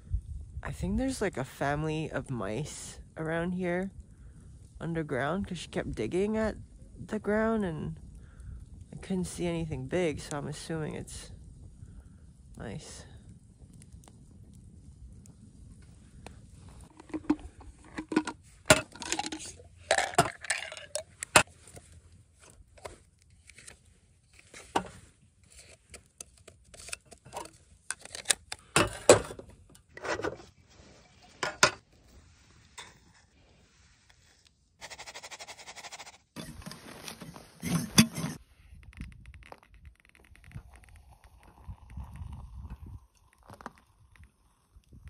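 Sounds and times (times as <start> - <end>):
hard objects clinking and scraping: 16.8 - 21.5.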